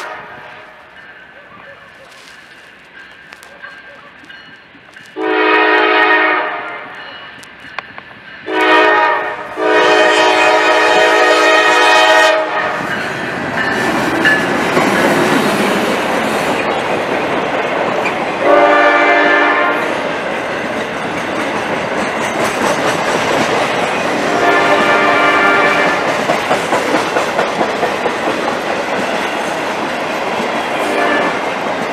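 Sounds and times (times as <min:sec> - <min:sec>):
locomotive air horn: 0:00.0 - 0:00.9, 0:05.2 - 0:07.1, 0:08.4 - 0:12.9, 0:18.4 - 0:20.0, 0:24.2 - 0:26.1, 0:30.8 - 0:31.4
train passing clickety-clack: 0:00.0 - 0:31.9.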